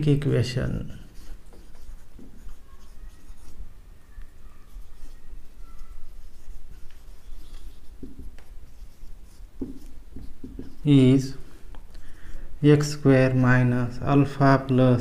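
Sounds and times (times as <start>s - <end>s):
marker writing on whiteboard: 0.9s - 12.1s
marker squeaks: 1.1s - 11.4s.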